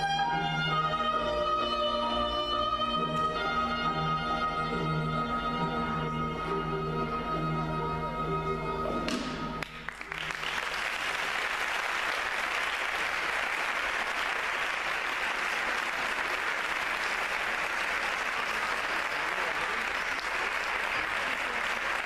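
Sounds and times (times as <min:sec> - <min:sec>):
backing music: 0:00.0 - 0:10.0
audience applause: 0:09.6 - 0:22.0.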